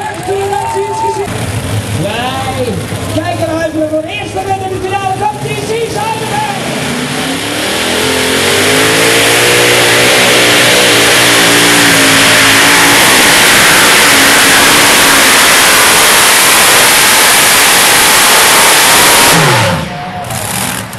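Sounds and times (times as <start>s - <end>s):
tractor engine at full throttle: 0.0s - 20.9s.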